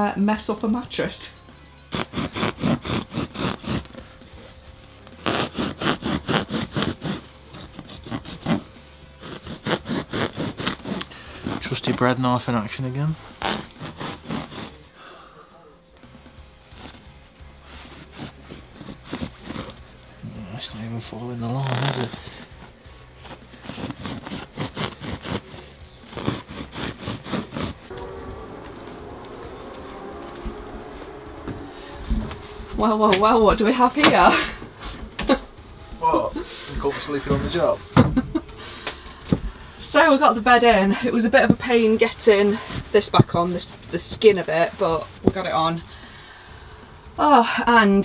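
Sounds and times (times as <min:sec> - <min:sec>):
knife sawing through foam: 0:01.9 - 0:04.0, 0:05.2 - 0:12.0, 0:13.3 - 0:14.9, 0:17.6 - 0:19.8, 0:23.2 - 0:27.9.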